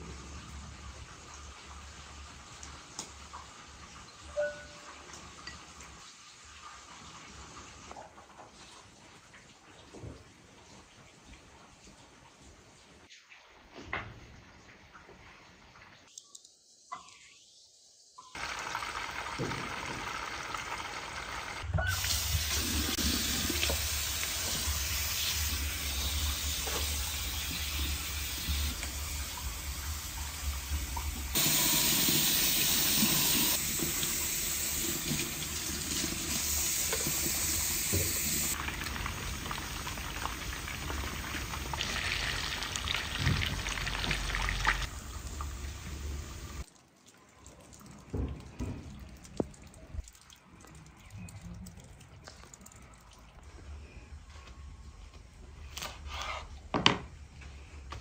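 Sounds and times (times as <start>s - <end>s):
water running and splashing: 18.4s - 53.7s.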